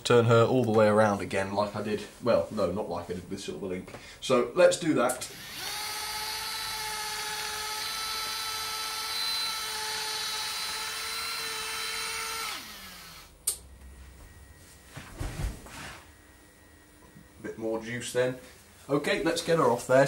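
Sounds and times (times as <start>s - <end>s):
small motor whining: 5.3s - 13.4s
sharp click: 13.4s - 13.7s.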